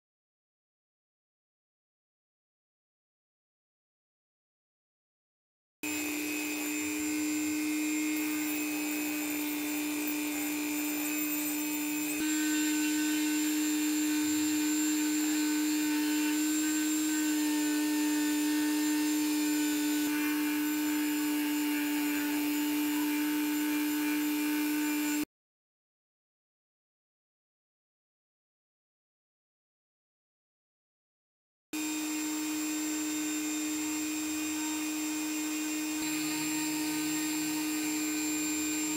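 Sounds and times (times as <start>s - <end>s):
rotary tool grinding metal: 5.8s - 25.3s, 31.8s - 38.9s.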